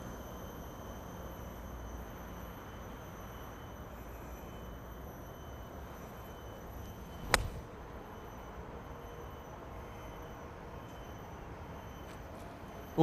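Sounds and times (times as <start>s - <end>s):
faint background hum: 0.0s - 13.0s
golf club striking ball: 7.2s - 7.6s.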